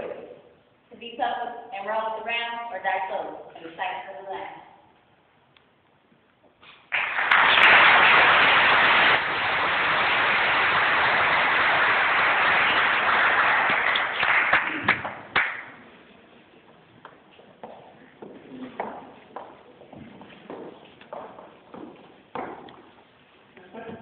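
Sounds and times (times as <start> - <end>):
audience applauding: 6.9 - 15.7.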